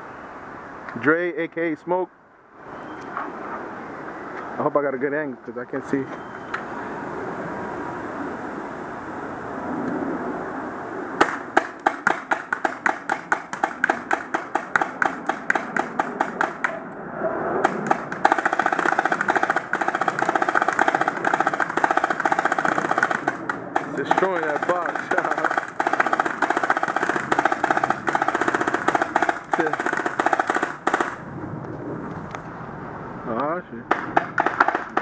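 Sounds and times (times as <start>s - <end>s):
paintball marker firing: 11.2s - 16.8s, 17.6s - 31.2s, 33.9s - 35.0s.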